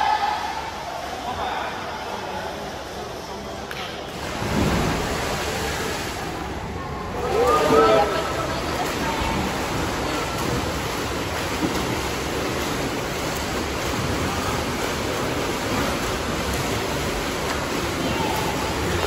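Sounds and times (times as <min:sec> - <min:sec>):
rushing water: 0:04.1 - 0:19.0.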